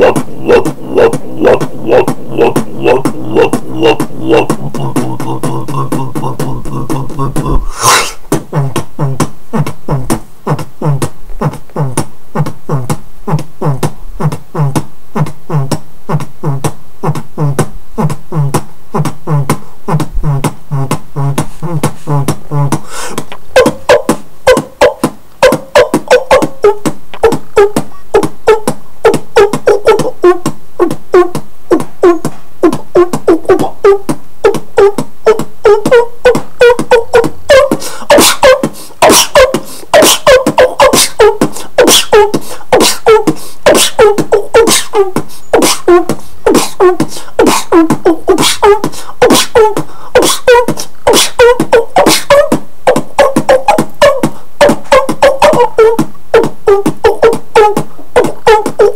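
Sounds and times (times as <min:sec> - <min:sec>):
person beatboxing: 0:00.0 - 0:58.9.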